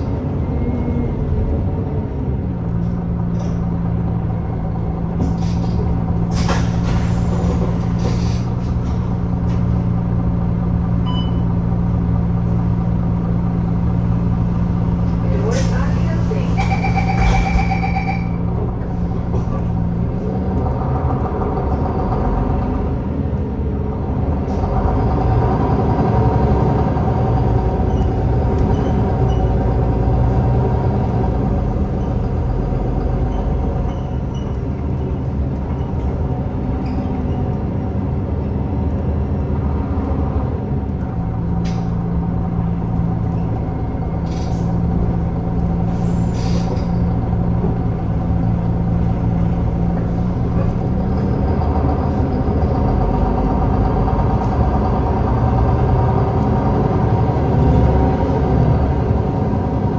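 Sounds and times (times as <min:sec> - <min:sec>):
bus diesel engine: 0:00.0 - 0:59.9.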